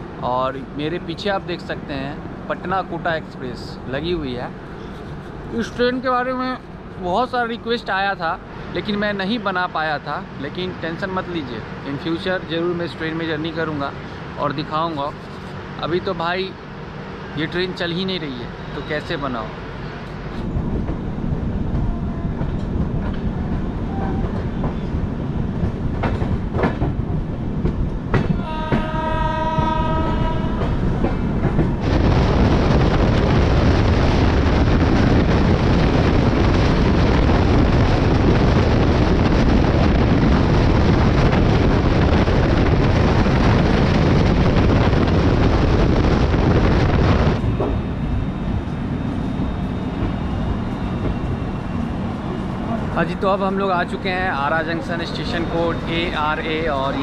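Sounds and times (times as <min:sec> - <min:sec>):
train rumbling and rattling on track: 0:00.0 - 0:57.0
train horn: 0:28.2 - 0:31.4.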